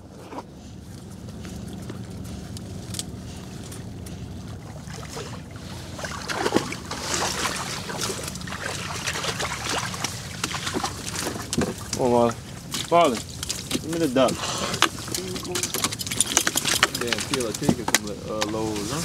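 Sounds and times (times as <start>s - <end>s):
reed stems rustling: 0.0s - 19.0s
steady low hum: 0.0s - 19.0s
dog splashing through shallow water: 3.6s - 17.7s
water dripping: 4.5s - 14.2s.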